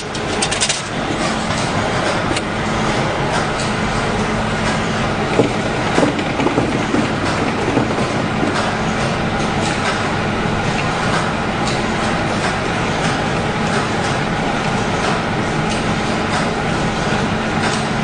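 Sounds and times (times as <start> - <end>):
faint conveyor clicks: 3.2 - 18.0
machinery din: 5.1 - 9.6.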